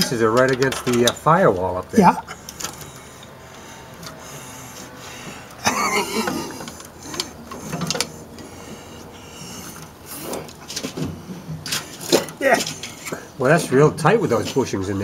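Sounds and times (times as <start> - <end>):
metal parts clicking and scraping: 0.0 - 4.2, 5.5 - 8.3, 9.6 - 13.7.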